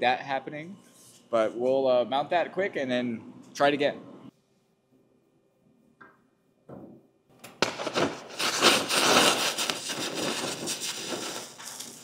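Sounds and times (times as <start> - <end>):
laser burning with crackling hiss: 7.6 - 12.0.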